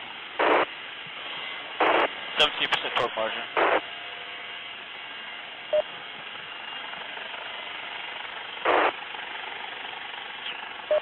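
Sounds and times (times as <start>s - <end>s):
helicopter rushing noise: 0.4s - 0.7s, 1.6s - 4.0s, 5.7s - 11.0s.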